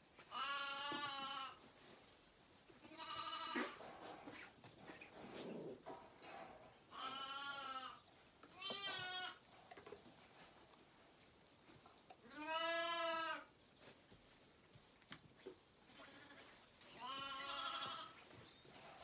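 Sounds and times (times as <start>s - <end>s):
lambs bleating: 0.3s - 1.6s, 2.8s - 3.8s, 6.9s - 9.4s, 12.2s - 13.5s, 15.9s - 18.2s.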